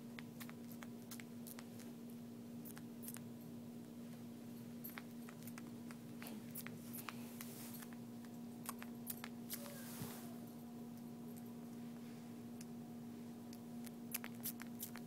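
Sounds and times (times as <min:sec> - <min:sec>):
puppy mouth clicks and sucking: 0:00.0 - 0:02.0, 0:02.6 - 0:03.3, 0:04.9 - 0:09.7, 0:13.5 - 0:15.0
steady low hum: 0:00.0 - 0:15.0.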